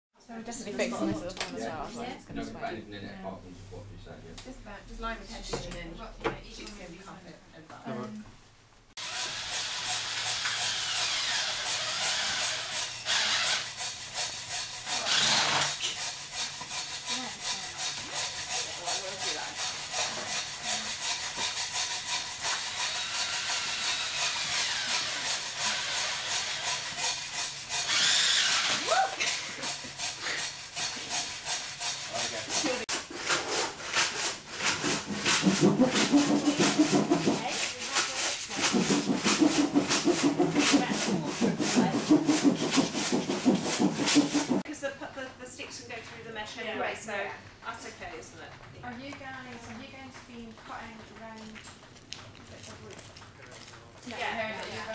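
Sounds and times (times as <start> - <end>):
drill grinding through plastic pipe: 9.0 - 44.6
rhythmic hand sanding: 9.0 - 44.7.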